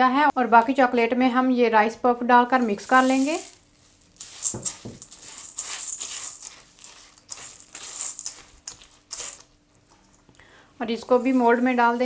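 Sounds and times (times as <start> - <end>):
spatula stirring in metal bowl: 2.8 - 9.6.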